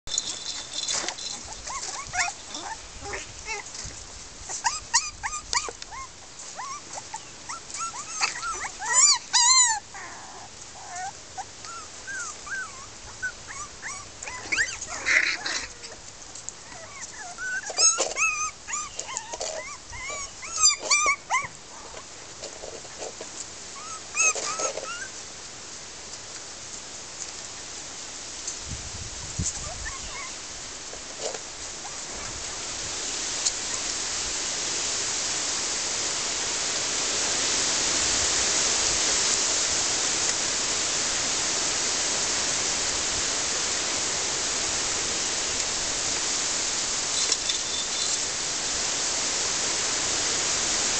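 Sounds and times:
puppies whining and yipping: 0.1s - 3.8s, 4.5s - 16.0s, 16.6s - 22.0s, 23.8s - 25.2s, 29.5s - 30.4s, 31.8s - 32.7s.

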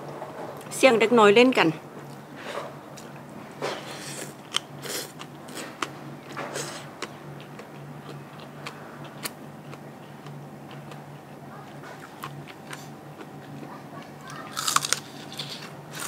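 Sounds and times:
faint low hum: 0.0s - 16.0s
crunchy chewing: 3.0s - 16.0s.

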